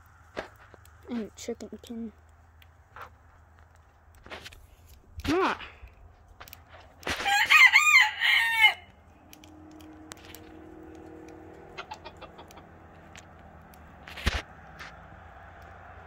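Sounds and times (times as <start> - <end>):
rooster crowing: 7.2 - 9.7, 11.2 - 12.6.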